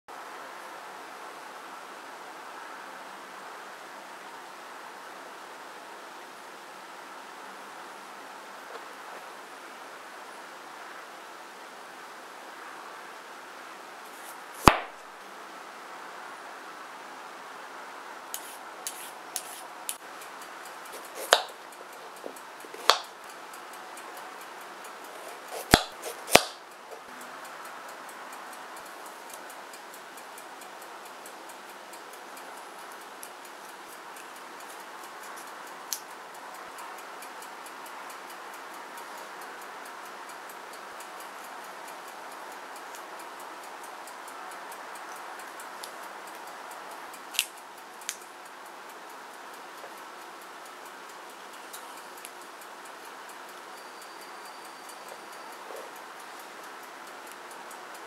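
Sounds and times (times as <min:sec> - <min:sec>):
knife cutting carrot: 0:14.2 - 0:14.9, 0:18.4 - 0:20.0, 0:20.9 - 0:23.1, 0:25.1 - 0:26.6
peeler clicks and taps: 0:20.9 - 0:23.2, 0:25.1 - 0:26.6.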